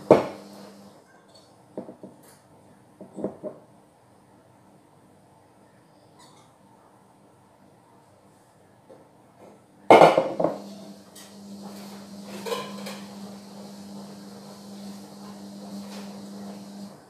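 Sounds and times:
steady low hum: 0.0 - 1.0, 10.4 - 17.0
dish clinking: 12.3 - 13.2
dishes clattering: 12.3 - 13.2.

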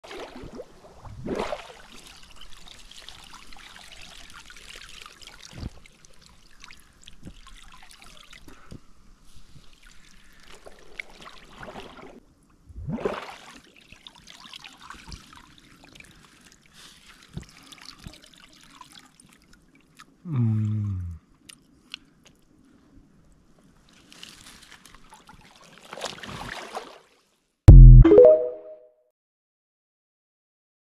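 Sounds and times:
water sloshing and dripping: 9.6 - 12.2
loud sound falling in pitch: 27.7 - 28.8.

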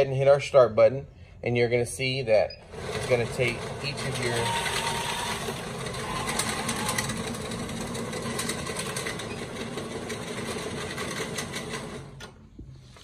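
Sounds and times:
paper collator whirring: 2.6 - 13.0.

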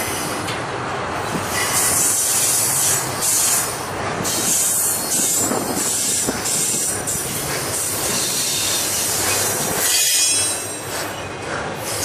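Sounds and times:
train wheels rumbling on rails: 0.0 - 12.0
high-pitched wheel squeal: 9.8 - 10.8.

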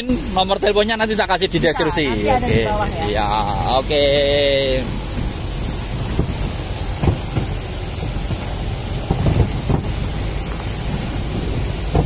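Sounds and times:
low rumble: 1.4 - 12.0
wind noise on microphone: 4.9 - 12.0.

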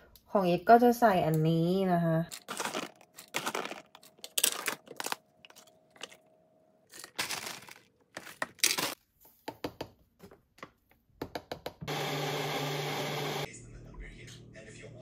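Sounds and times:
packets crinkling: 2.3 - 6.3, 6.9 - 9.0
clicks and taps: 9.4 - 11.9.

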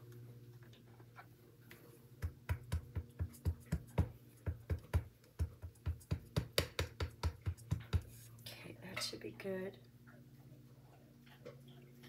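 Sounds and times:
rubber stamp tapping ink pad: 2.2 - 8.2.

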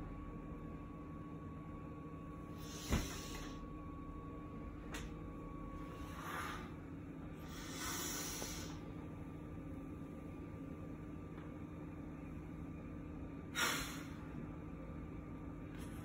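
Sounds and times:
low room hum: 0.0 - 16.0
woman exhaling heavily: 13.6 - 14.2.

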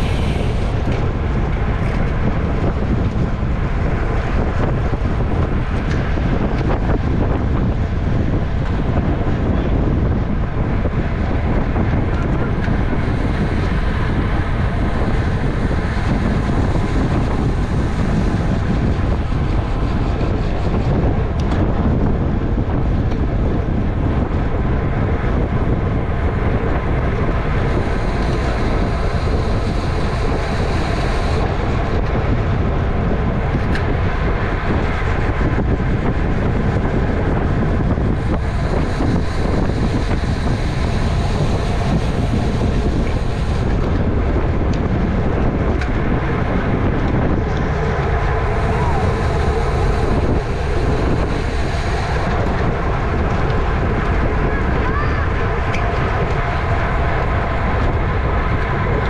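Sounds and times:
wind rush over microphone: 0.0 - 59.0.

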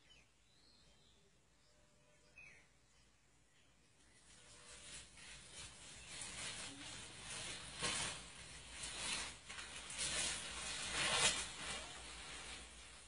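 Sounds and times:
rustling leaves and branches: 4.0 - 13.0.

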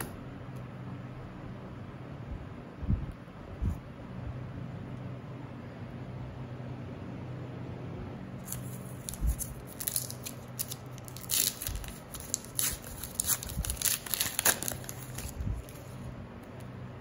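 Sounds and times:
foil wrapper tearing and crinkling: 8.4 - 16.0.

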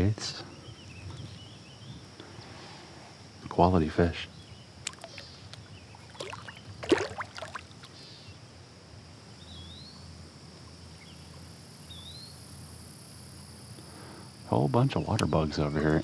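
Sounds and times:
outdoor ambience: 0.0 - 16.0
fish splashing in water: 4.8 - 5.4, 6.0 - 8.0.

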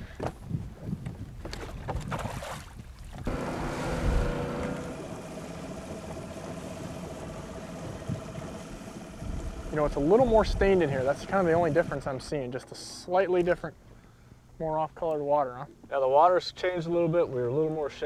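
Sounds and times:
wind noise: 0.0 - 4.9, 5.8 - 12.3
water noise: 1.4 - 14.0
boat motor humming: 3.2 - 12.4.

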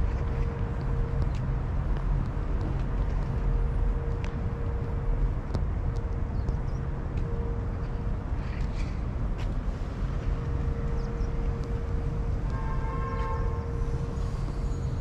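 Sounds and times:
city traffic rumble: 0.0 - 15.0
faint constant hum: 0.0 - 15.0.

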